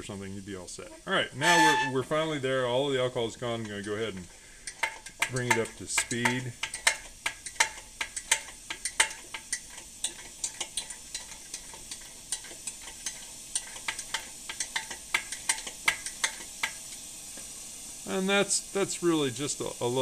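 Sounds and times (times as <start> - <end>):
burner hissing: 0.0 - 20.0
pressure stove pump clicks: 3.6 - 17.5.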